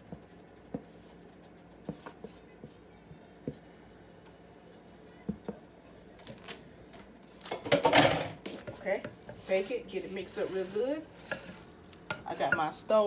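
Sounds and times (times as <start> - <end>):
spatula scraping and tapping bowl: 0.0 - 2.8, 7.6 - 13.0.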